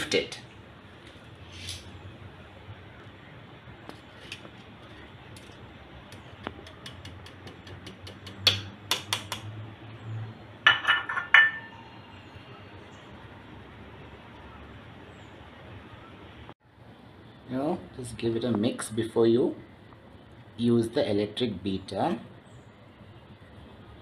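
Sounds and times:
glass bowl and metal sieve clinking: 10.6s - 11.9s.

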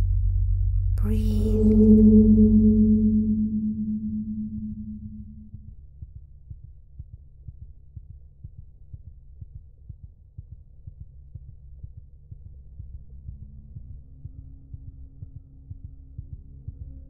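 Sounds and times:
low rumbling drone: 0.0s - 5.7s
gong-like tone: 1.0s - 5.7s.

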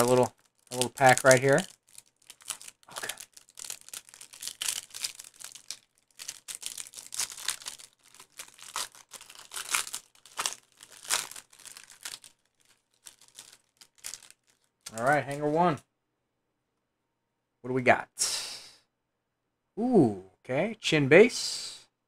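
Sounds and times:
foil wrapper crinkling and tearing: 0.0s - 15.5s.

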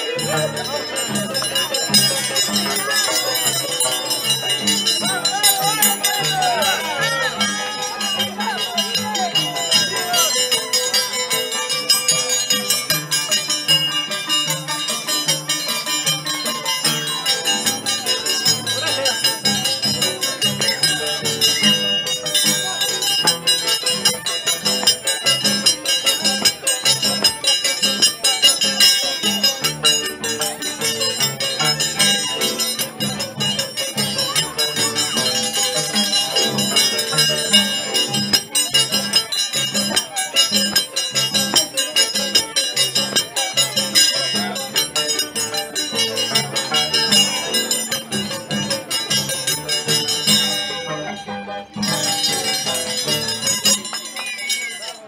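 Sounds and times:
live folk band music: 0.0s - 11.9s, 16.4s - 46.6s.

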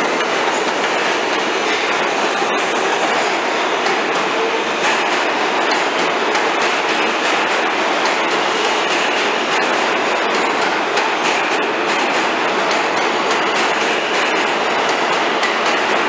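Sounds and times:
subway wheels rumbling on rail: 0.0s - 16.0s
wheels clicking over rail joints: 3.8s - 16.0s.

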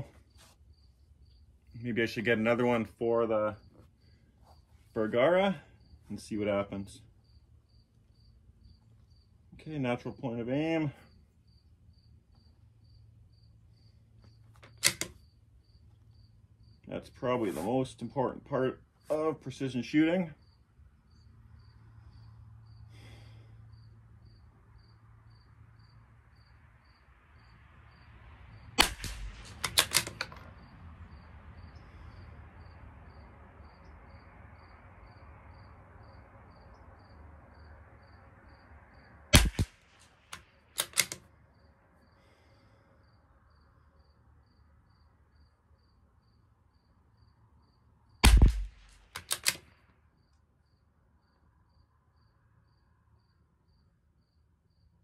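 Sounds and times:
faint insect chirping: 0.0s - 2.0s, 2.9s - 28.8s, 30.4s - 39.3s, 41.3s - 48.2s, 49.7s - 55.0s
rifle bolt clicks: 14.6s - 15.2s, 28.8s - 30.5s, 39.4s - 41.2s, 48.2s - 49.7s
rifle shots: 28.8s - 30.4s, 39.3s - 41.2s, 48.2s - 49.6s.

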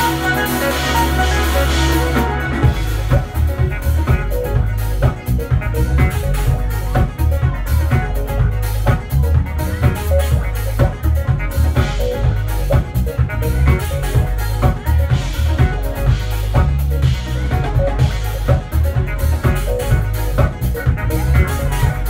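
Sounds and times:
booming bass line: 0.0s - 22.0s
drum kit playing breakbeat: 0.0s - 22.0s
electronic keyboards: 0.0s - 22.0s.

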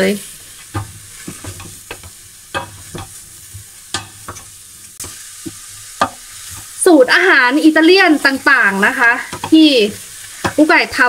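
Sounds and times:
vegetables sizzling in a pot: 0.0s - 11.0s
wooden spoon scraping a pot: 0.5s - 6.7s.

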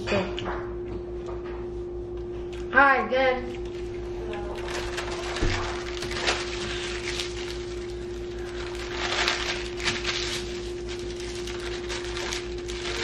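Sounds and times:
steady low hum: 0.0s - 13.0s
paper wrappers crinkling: 3.5s - 13.0s.

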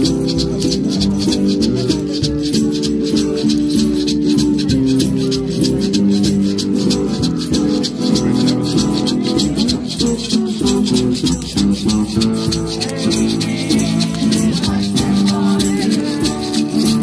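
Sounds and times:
hand shakers rattling: 0.0s - 17.0s
strummed acoustic guitar: 0.0s - 17.0s
people singing along: 12.7s - 17.0s.

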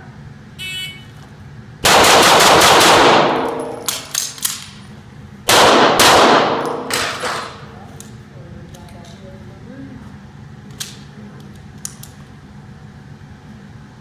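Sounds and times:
pistol shots echoing indoors: 1.8s - 4.6s, 5.5s - 7.5s.

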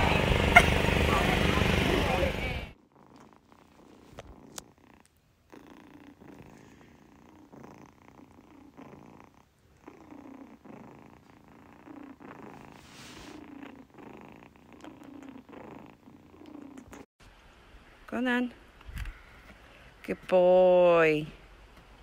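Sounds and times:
kitten purring: 0.6s - 17.1s.

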